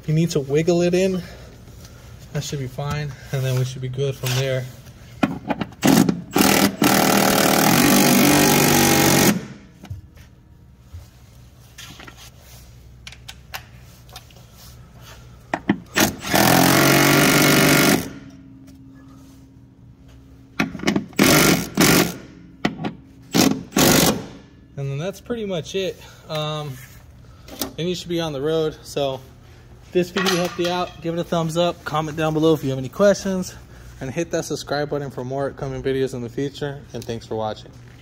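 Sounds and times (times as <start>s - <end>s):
impact wrench hammering: 5.2s - 9.7s, 15.5s - 18.4s, 20.6s - 24.4s.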